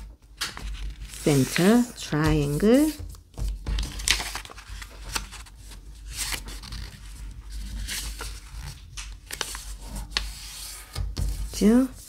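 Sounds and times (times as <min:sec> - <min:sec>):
paper rustling and scraping: 0:00.0 - 0:12.0
crisp paper crackles: 0:03.7 - 0:10.4.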